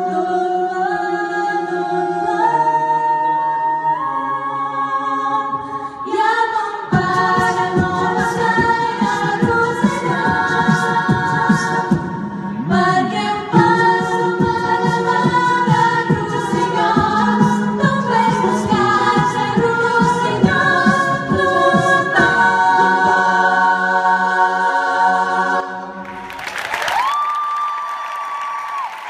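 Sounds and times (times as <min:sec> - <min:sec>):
vocal group singing in harmony: 0:00.0 - 0:26.1
applause: 0:26.0 - 0:29.0.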